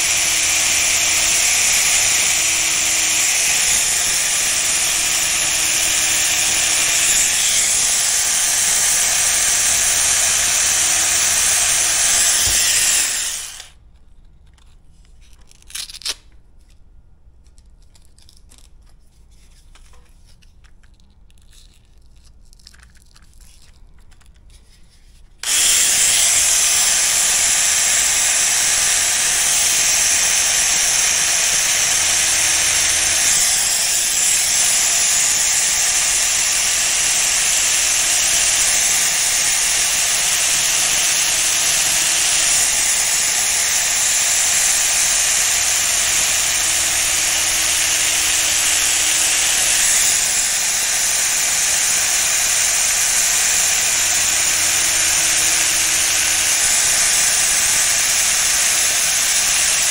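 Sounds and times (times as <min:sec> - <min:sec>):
electric sander on steel blade: 0:00.0 - 0:13.8, 0:25.4 - 0:59.9
faint handling sounds: 0:13.8 - 0:25.4.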